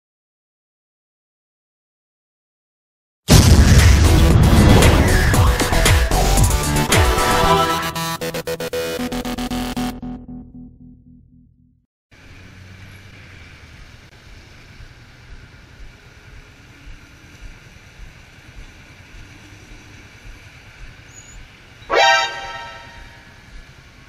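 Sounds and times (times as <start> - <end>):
vehicle horn honking: 7.1 - 8.1, 21.8 - 23.3
traffic: 12.1 - 24.0
motorcycle engine idling: 14.2 - 21.7.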